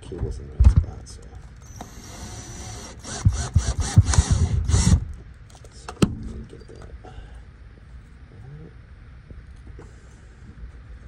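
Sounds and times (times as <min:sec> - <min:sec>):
cordless drill driving a bolt: 0:01.6 - 0:05.1.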